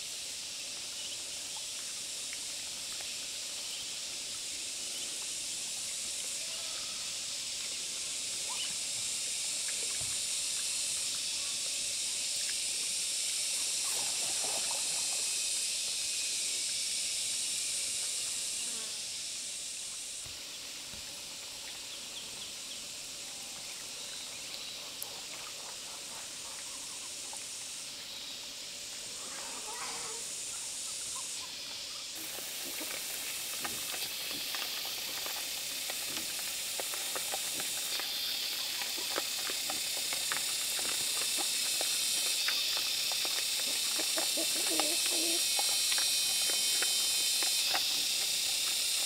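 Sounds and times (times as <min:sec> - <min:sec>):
steady high hiss: 0:00.0 - 0:49.0
pigs crunching corn: 0:32.2 - 0:49.0.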